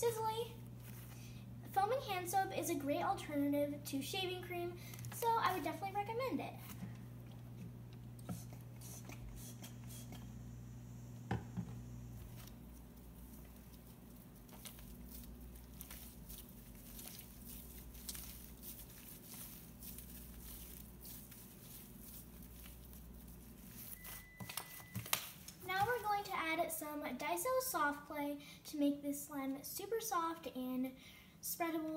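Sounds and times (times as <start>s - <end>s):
steady low hum: 0.0s - 25.7s
slime squishing: 12.3s - 25.3s.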